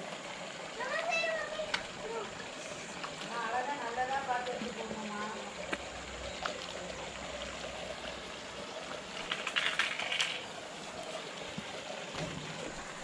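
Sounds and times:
rushing water: 0:00.0 - 0:13.0.

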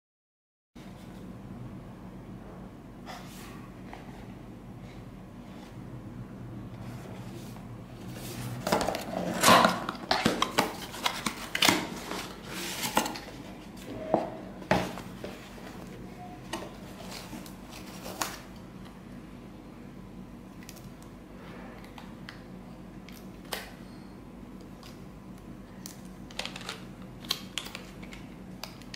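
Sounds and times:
packaging rustling and crinkling: 0:08.2 - 0:13.6, 0:16.6 - 0:18.5.

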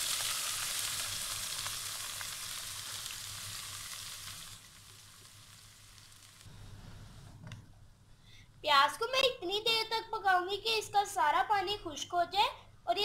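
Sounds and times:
onions sizzling in hot fat: 0:00.0 - 0:06.5.

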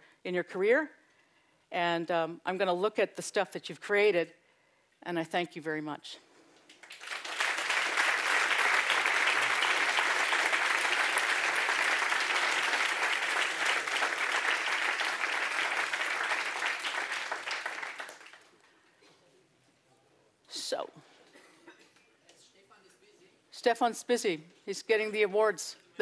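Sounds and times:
audience applauding: 0:06.7 - 0:18.5.

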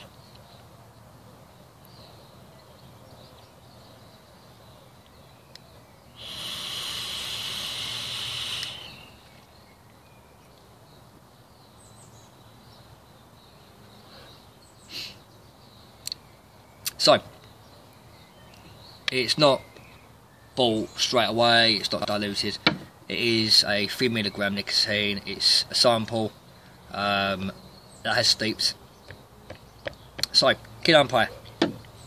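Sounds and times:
e-cigarette vaping hiss: 0:06.2 - 0:09.1.

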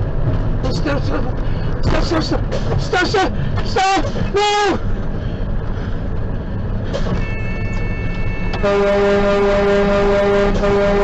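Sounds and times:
truck engine and road rumble: 0:00.0 - 0:11.0
truck air horn blast: 0:08.6 - 0:11.0.

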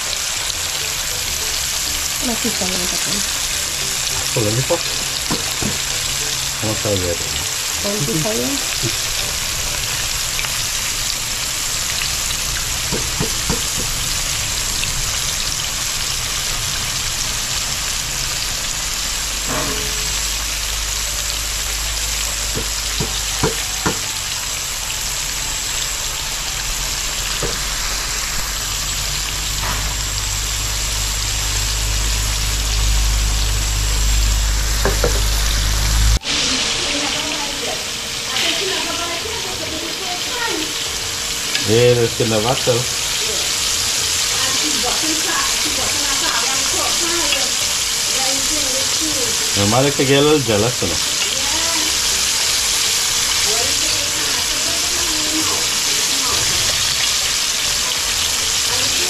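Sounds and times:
fish sizzling in hot oil: 0:00.0 - 0:59.0
low rumble: 0:25.1 - 0:36.2.

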